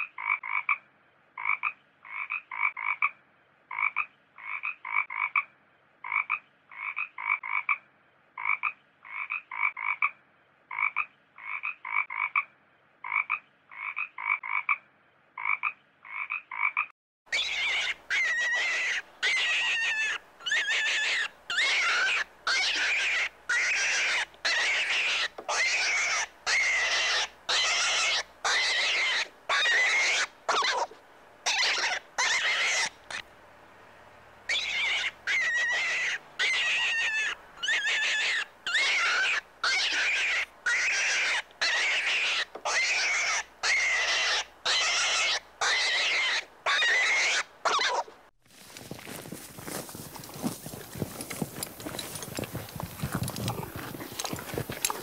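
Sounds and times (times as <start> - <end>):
frog croaking: 8.4 - 14.8, 15.4 - 33.2
harsh squealing calls: 17.3 - 33.2, 34.5 - 48.1.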